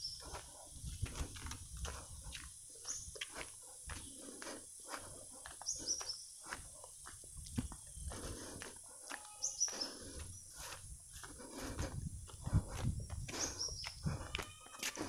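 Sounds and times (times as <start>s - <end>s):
footsteps on dirt path: 0.0s - 15.0s
bird chirping: 2.7s - 3.2s, 5.6s - 6.8s, 9.2s - 10.7s.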